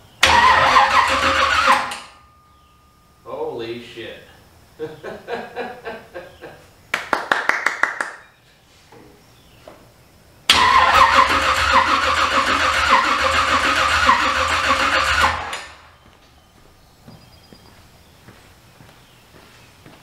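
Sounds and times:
engine cranking without starting: 0.2s - 2.2s, 10.5s - 15.9s.

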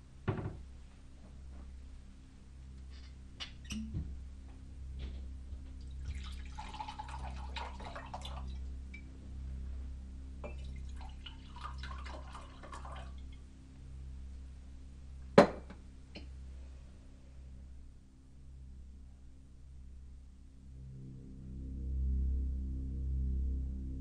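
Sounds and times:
steady low hum: 0.0s - 24.0s
glass set down on counter: 0.3s - 0.6s, 15.4s - 16.3s
liquid pouring into a glass: 5.8s - 9.1s, 10.4s - 13.4s.

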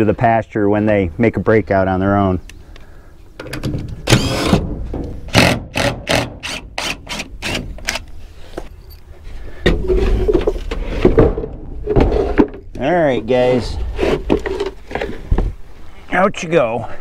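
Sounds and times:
drill driver pulsing and whining: 4.1s - 4.6s, 5.3s - 8.0s.

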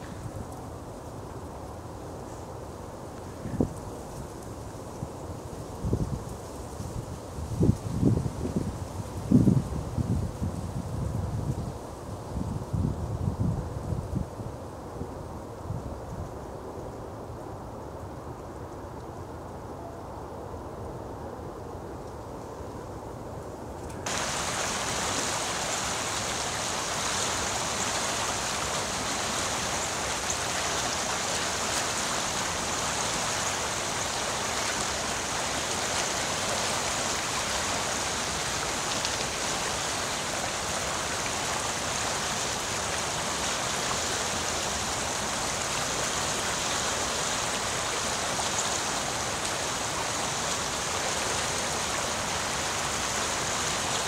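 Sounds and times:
stream running over rocks: 24.0s - 54.0s.

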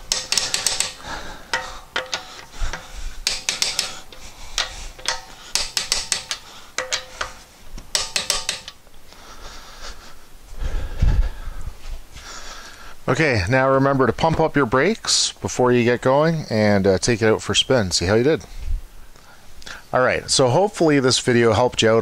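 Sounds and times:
torque wrench ratchet clicks: 0.0s - 7.3s, 7.9s - 8.8s.

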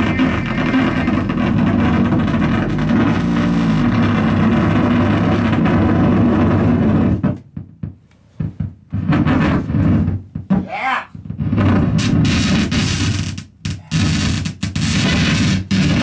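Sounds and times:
electronic noise music: 0.0s - 5.7s.

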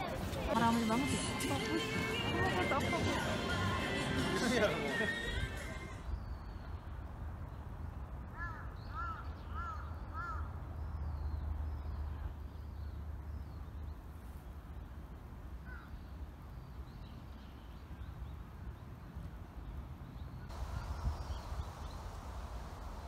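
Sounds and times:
crow cawing: 8.4s - 10.5s
steady low rumble: 20.5s - 23.0s.

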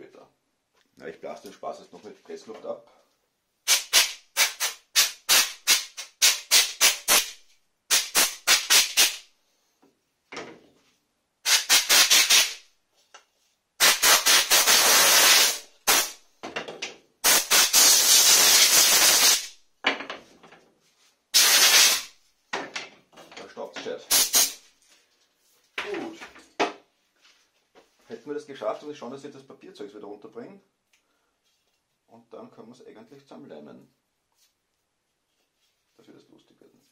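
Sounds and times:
compressed air blow gun hissing: 13.8s - 16.2s, 17.2s - 19.5s, 21.4s - 22.1s, 24.1s - 24.6s.

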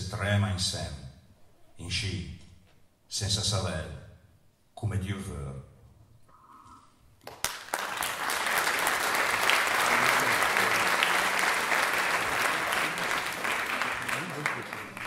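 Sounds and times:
audience applauding: 7.2s - 15.0s.

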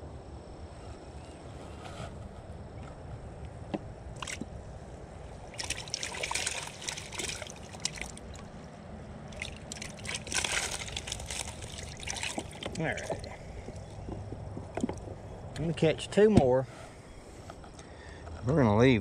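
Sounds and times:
water trickling and splashing: 4.1s - 4.6s, 5.3s - 15.2s.

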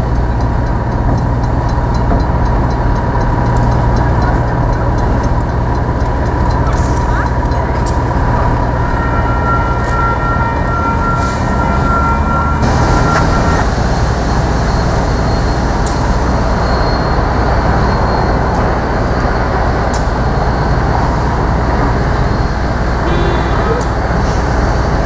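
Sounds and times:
diesel locomotive rumble: 0.0s - 25.0s
freight cars rolling: 0.0s - 25.0s
steady high tone: 8.2s - 13.7s, 20.4s - 24.6s.

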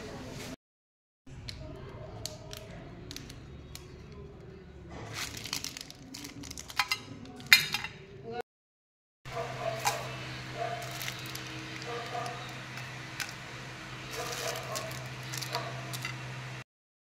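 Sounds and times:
plastic wrappers crinkling: 5.0s - 7.5s, 9.6s - 16.4s.

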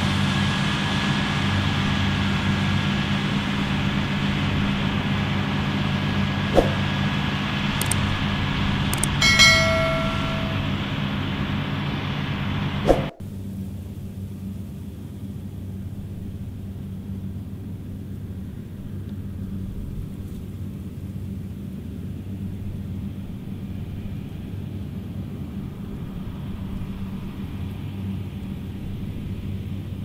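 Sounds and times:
combine harvester engine humming: 0.0s - 30.0s.

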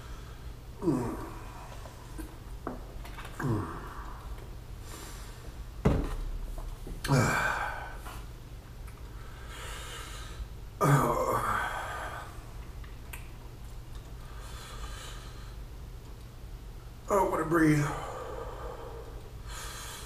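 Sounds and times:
man gasping and groaning: 0.8s - 2.3s, 3.3s - 4.4s, 7.0s - 8.2s, 10.8s - 12.4s.

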